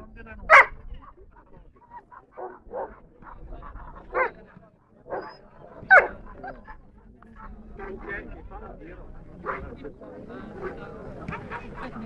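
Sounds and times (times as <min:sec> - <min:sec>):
dog barking: 0:00.5 - 0:01.2, 0:01.9 - 0:06.8, 0:07.4 - 0:08.2, 0:09.4 - 0:09.8.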